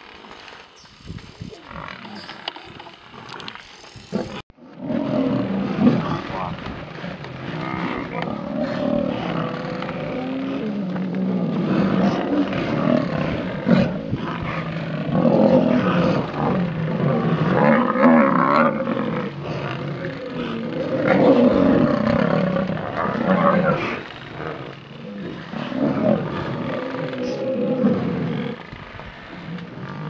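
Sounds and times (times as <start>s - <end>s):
lionesses growling: 0.0s - 30.0s.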